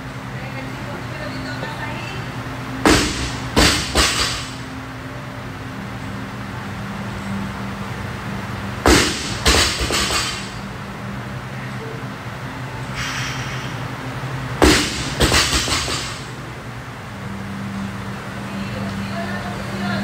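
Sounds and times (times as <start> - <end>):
low hum: 0.0 - 20.0
barbell slamming onto floor: 8.9 - 10.5, 14.6 - 16.2.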